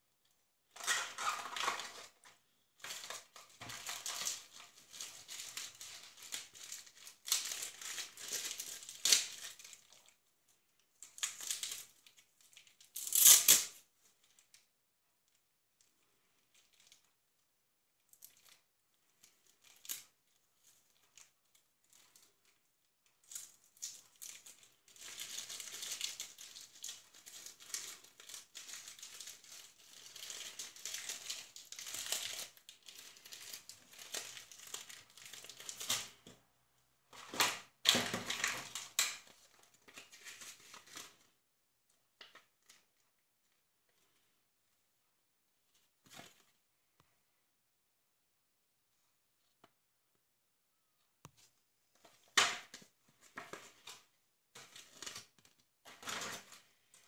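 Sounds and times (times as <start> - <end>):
plastic tearing: 0.7 - 10.2, 11.0 - 13.9, 23.2 - 36.2
plastic bags crinkling: 0.8 - 10.2, 23.2 - 36.2.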